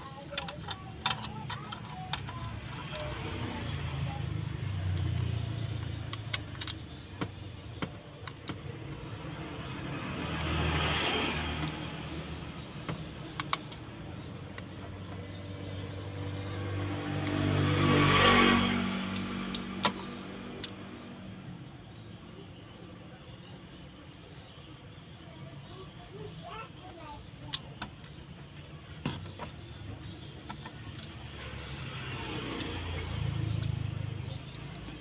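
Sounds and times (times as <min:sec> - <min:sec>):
passing vehicle: 0:00.0 - 0:22.4, 0:25.6 - 0:35.0
small plastic clicks and taps: 0:12.8 - 0:15.2.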